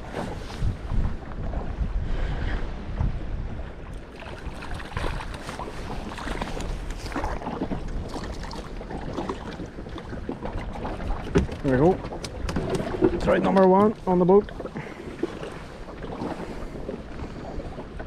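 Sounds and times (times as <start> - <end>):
wind buffeting microphone: 0.0 - 18.0
water slapping against boat: 3.9 - 18.0.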